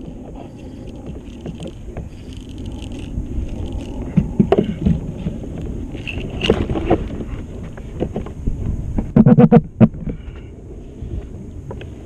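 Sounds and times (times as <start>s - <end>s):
fishing gear knocking and rattling: 0.0s - 8.4s
wind rumbling on microphone: 0.0s - 12.0s.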